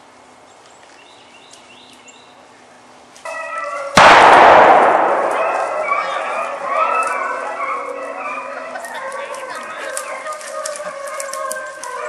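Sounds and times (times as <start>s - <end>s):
shotgun shot: 4.0s - 6.4s
dog baying: 5.4s - 12.0s.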